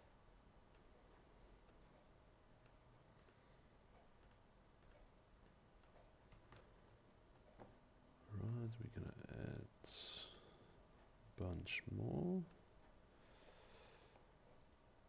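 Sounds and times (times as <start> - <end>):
computer mouse clicks: 1.6 - 7.6.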